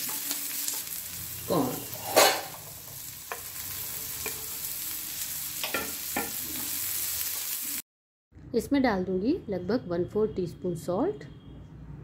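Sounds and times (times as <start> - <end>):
vegetables sizzling in a frying pan: 0.0 - 7.8
spatula tapping and scraping pan: 5.6 - 6.4.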